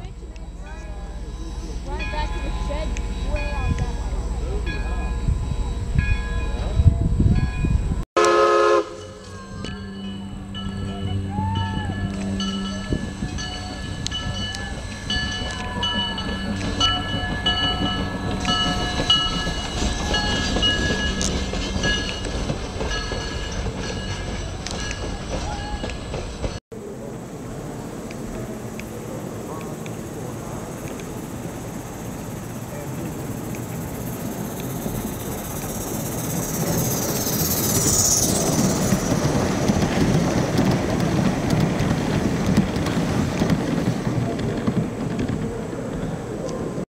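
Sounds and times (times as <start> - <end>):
train low rumble: 0.0 - 46.8
high ringing tone: 0.4 - 8.0, 8.8 - 25.9, 32.6 - 39.8.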